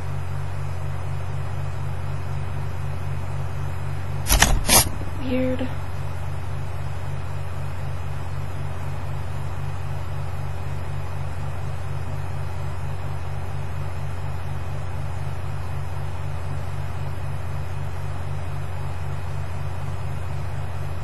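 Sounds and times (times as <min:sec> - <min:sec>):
low pulsing hum: 0:04.3 - 0:06.2.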